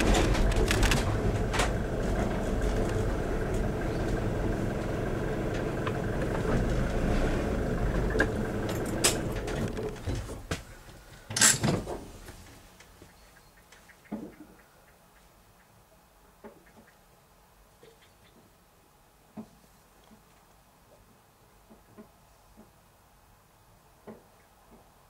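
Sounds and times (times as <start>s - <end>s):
car engine and tyre rumble: 0.0s - 10.7s.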